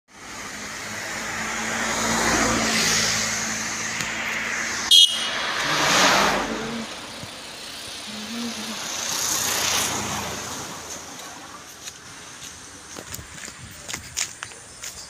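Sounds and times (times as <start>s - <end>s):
low engine hum: 0.1s - 15.0s
vehicles passing by: 0.1s - 15.0s
loud high beep: 4.9s - 5.4s.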